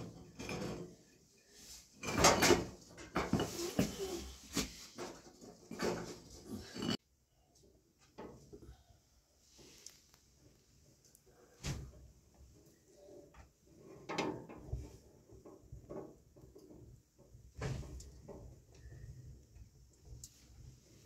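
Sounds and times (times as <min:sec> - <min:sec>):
knocks and clatters: 0:02.0 - 0:03.9.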